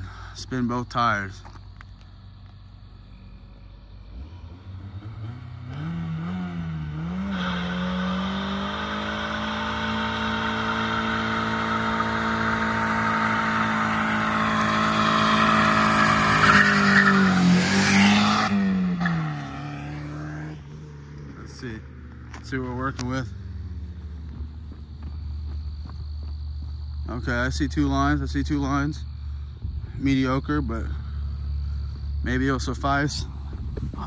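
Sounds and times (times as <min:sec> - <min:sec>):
car engine revving: 0:02.3 - 0:25.9
tyres squealing: 0:09.2 - 0:19.2.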